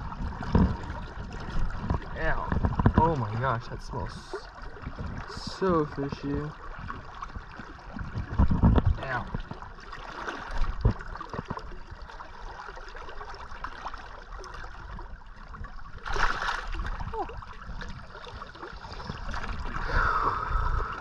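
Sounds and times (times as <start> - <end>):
river current flowing: 15.8 - 21.0
fish splash in water: 16.0 - 17.3.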